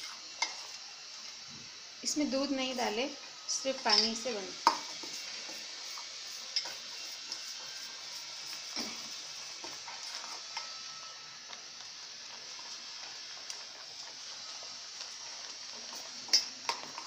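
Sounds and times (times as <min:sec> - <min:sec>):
oats cooking hiss: 0:00.0 - 0:17.0
spoon scraping a pot: 0:03.8 - 0:10.8.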